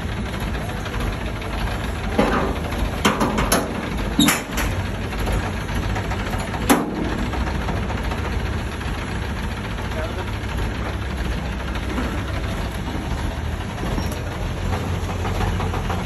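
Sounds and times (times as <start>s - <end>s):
engine idling: 0.0s - 16.0s
knocks and rattles of handling: 2.1s - 6.9s.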